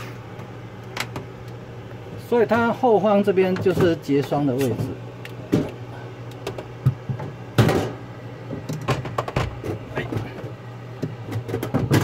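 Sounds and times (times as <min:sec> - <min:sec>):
steady low hum: 0:00.0 - 0:12.0
plastic panel knocking and clattering: 0:08.6 - 0:09.8, 0:11.3 - 0:12.0.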